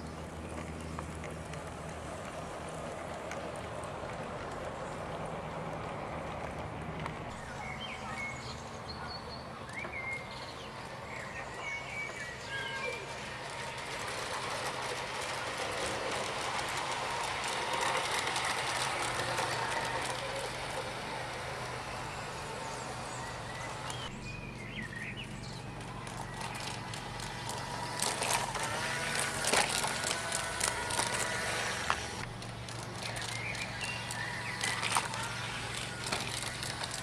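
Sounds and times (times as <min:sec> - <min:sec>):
model trains running with low hum: 0:00.0 - 0:37.0
wheels clicking over rail joints: 0:00.0 - 0:37.0.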